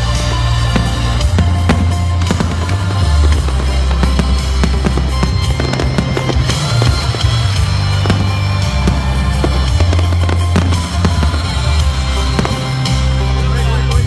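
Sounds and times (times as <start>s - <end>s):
fireworks crackling and popping: 0.0s - 14.0s
loud music with heavy bass: 0.0s - 14.0s.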